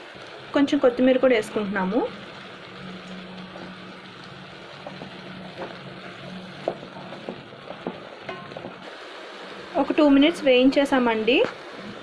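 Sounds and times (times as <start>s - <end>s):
vegetables sizzling in a pot: 0.0s - 12.0s.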